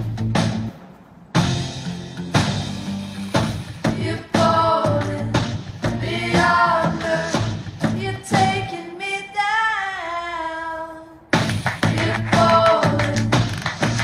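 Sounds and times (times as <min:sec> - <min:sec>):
person singing: 0:06.0 - 0:11.2.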